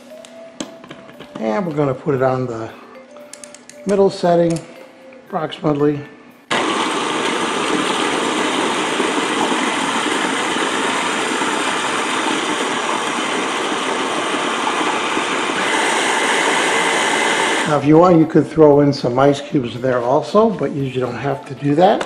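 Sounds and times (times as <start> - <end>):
stick blender running: 6.5 - 18.1.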